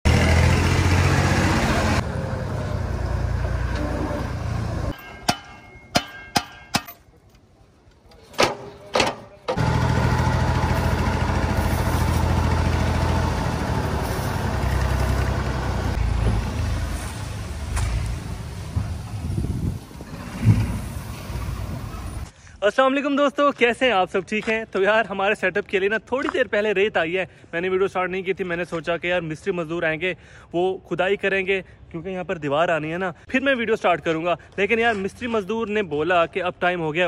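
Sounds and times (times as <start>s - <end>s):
diesel tractor engine running: 0.1s - 5.0s, 9.5s - 22.3s
sharp knocks: 5.0s - 7.0s
sand tipping from trolley: 10.6s - 12.8s.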